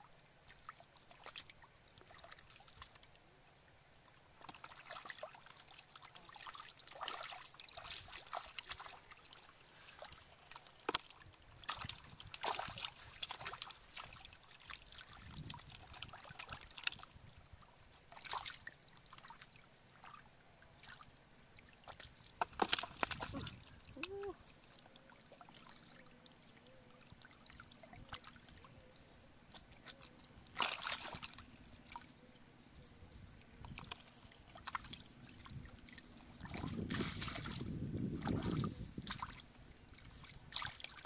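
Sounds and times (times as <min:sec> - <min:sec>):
hands and feet splashing in water: 0:04.4 - 0:17.1, 0:18.0 - 0:20.2, 0:21.7 - 0:24.4, 0:29.5 - 0:32.1, 0:33.6 - 0:41.0.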